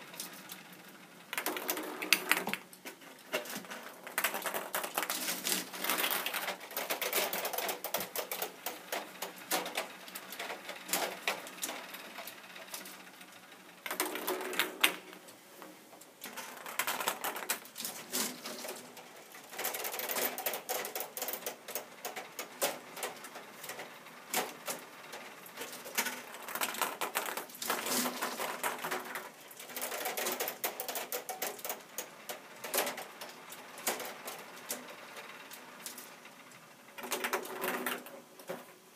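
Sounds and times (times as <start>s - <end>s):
plastic mechanism clicking and rattling: 1.3s - 12.0s, 16.2s - 34.9s.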